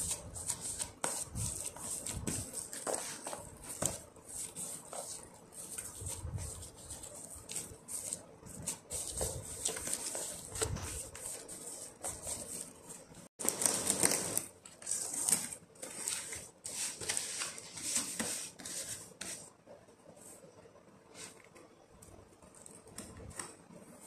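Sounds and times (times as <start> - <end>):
hand kneading dough in plastic bowl: 0.0 - 14.4.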